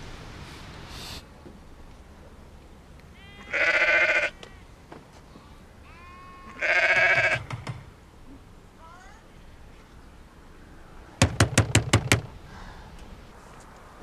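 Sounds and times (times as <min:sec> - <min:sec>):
sheep bleating: 0:03.1 - 0:04.8, 0:05.8 - 0:07.5.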